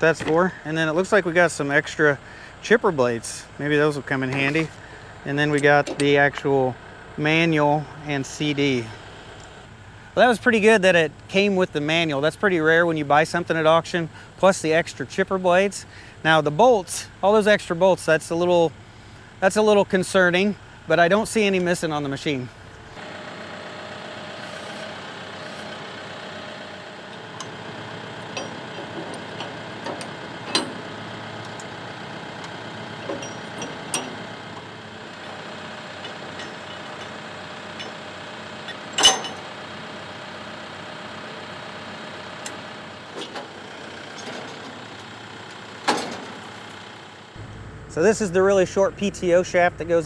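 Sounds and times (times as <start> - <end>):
tractor diesel engine idling: 0.0 - 50.0
metal clanks of hitch: 27.1 - 39.6, 42.4 - 46.6.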